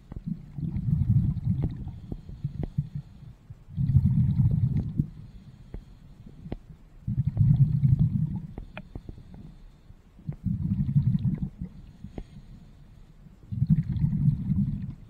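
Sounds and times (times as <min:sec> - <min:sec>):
bubbling exhaled air underwater: 0:00.0 - 0:05.3, 0:07.0 - 0:09.2, 0:10.2 - 0:12.6, 0:13.5 - 0:15.0
faint clicks: 0:08.5 - 0:09.5.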